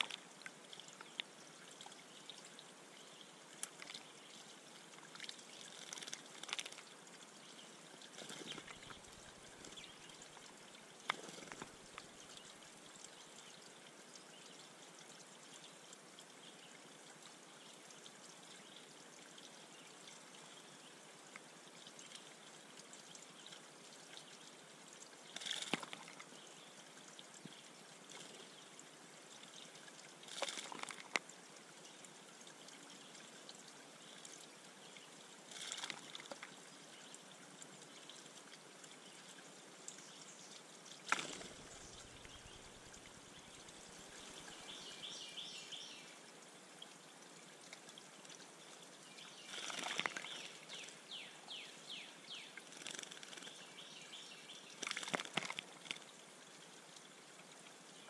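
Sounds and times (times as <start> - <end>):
water trickling: 0.0 - 58.0
bird splashing in water: 5.2 - 6.8, 25.4 - 26.2, 30.3 - 31.2, 41.0 - 43.2, 49.5 - 50.6, 54.8 - 56.0.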